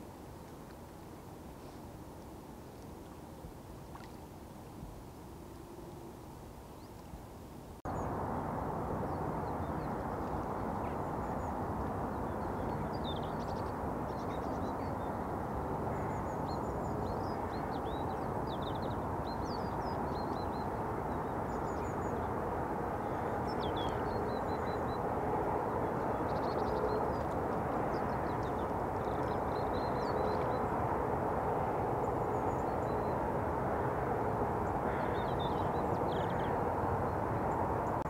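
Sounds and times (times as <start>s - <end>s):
distant road traffic hum: 7.9s - 38.0s.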